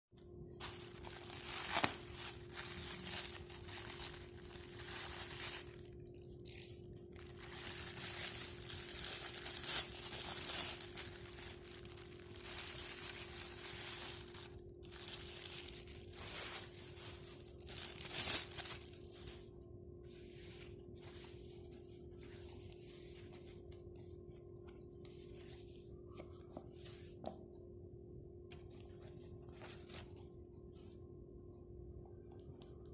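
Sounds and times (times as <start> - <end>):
faint steady hum: 0.2 - 32.9
foam wrapping rustling: 0.6 - 6.2, 6.9 - 19.5
plastic bag torn and crinkled: 0.6 - 19.5.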